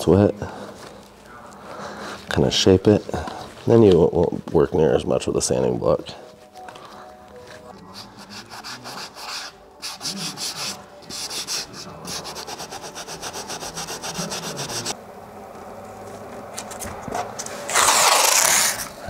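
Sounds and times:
hand sanding wood: 7.9s - 15.0s.

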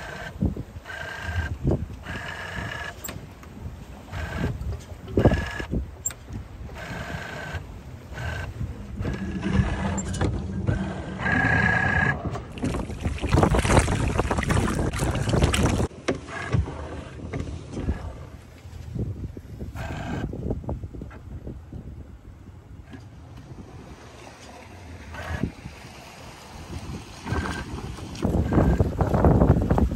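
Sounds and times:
squeaky creaks of boat gear: 0.0s - 12.6s
wind and water rushing: 0.0s - 29.9s.

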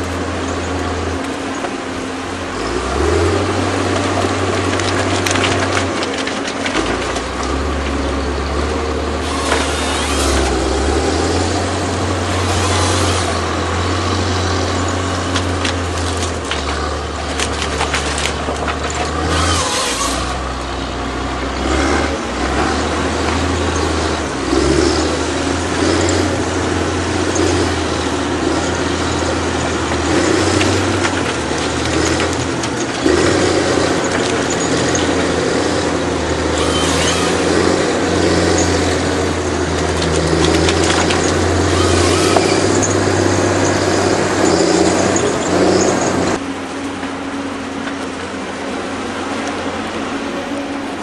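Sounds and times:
diesel engine running under load: 0.0s - 51.0s
hydraulic noise: 1.2s - 46.4s
knocks and cracks of trees: 3.3s - 47.2s.

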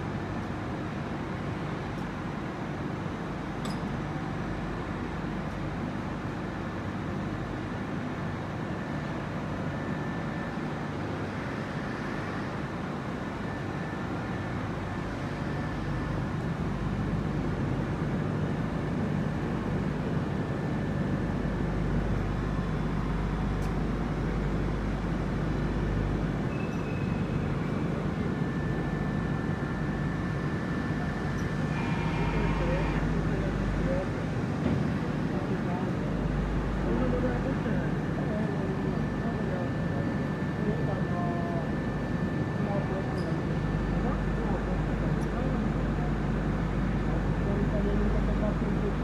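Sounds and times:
industrial machinery drone: 0.0s - 49.0s
faint high whine: 22.7s - 34.3s.

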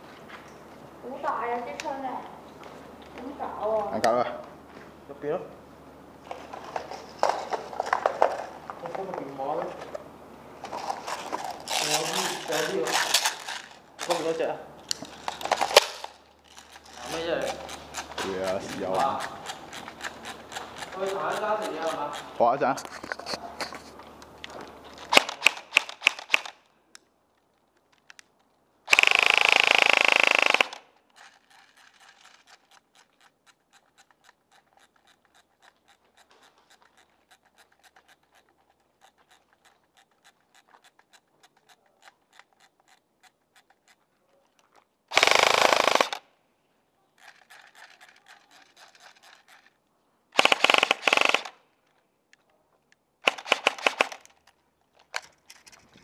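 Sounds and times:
airsoft rifle full-auto bursts: 25.0s - 26.6s, 28.9s - 32.4s, 45.1s - 46.2s, 50.4s - 51.6s, 53.2s - 54.3s.

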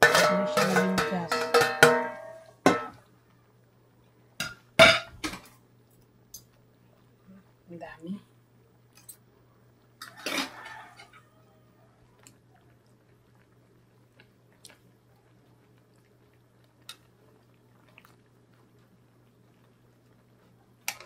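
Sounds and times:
metal utensils clicking on pan: 0.0s - 3.0s.

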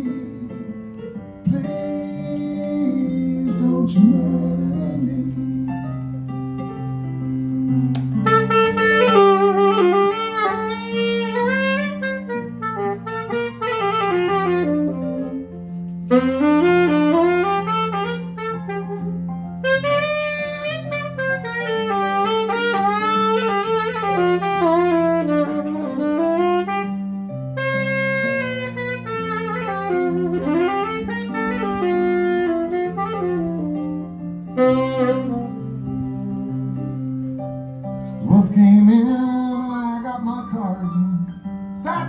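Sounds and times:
tenor saxophone solo: 7.5s - 38.4s.

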